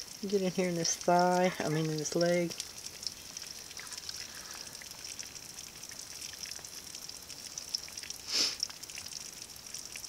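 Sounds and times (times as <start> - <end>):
chicken sizzling in oven: 0.0 - 10.0
brief scrape: 8.3 - 8.6.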